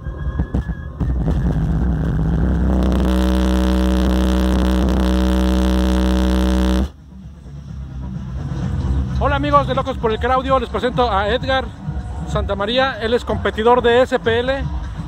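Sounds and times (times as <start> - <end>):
sustained low bass tone: 1.2 - 7.0.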